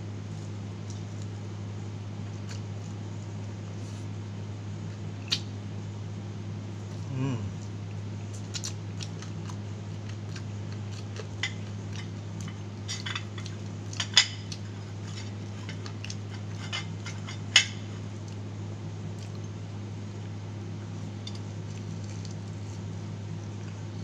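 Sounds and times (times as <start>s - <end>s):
steady low hum: 0.0s - 24.0s
chewing clicks: 8.4s - 12.6s.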